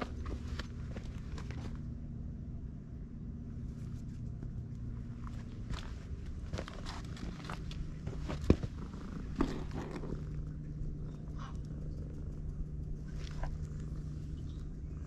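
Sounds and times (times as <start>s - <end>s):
cat purring: 3.9s - 15.0s.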